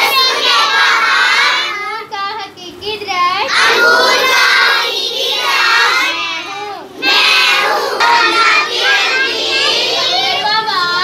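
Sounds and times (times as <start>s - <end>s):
children singing in unison: 0.0s - 1.7s, 3.5s - 6.4s, 7.0s - 10.5s.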